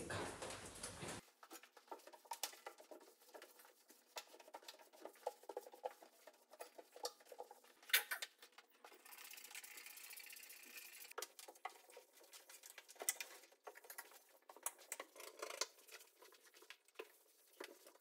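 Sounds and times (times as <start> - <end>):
clicks and knocks of handling: 11.1 - 16.1.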